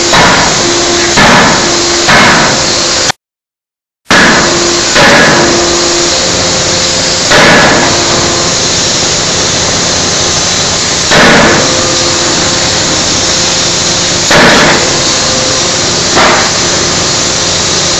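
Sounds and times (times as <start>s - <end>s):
forging hammer blows: 0.0s - 3.2s, 4.1s - 17.9s
loud steady hiss: 0.0s - 3.2s, 4.1s - 17.9s.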